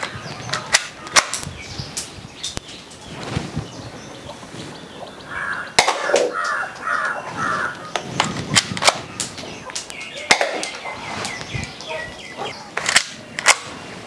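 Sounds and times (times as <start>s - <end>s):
crow cawing: 5.2s - 8.0s.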